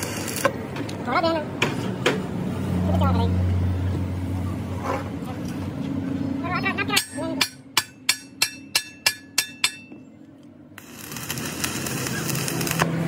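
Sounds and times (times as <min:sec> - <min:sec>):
welding arc crackling: 0:00.0 - 0:00.7, 0:10.8 - 0:13.0
hammer striking metal: 0:06.9 - 0:10.0.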